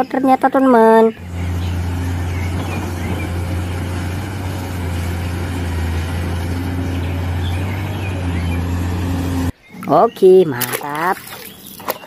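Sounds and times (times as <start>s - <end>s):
excavator diesel engine droning: 0.8s - 9.6s.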